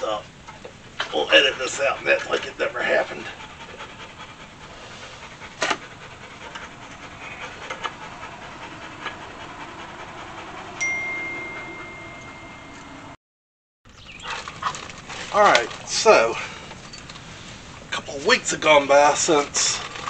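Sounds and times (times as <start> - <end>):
dog panting: 0.6 - 13.1
thin steady high tone: 5.9 - 13.2.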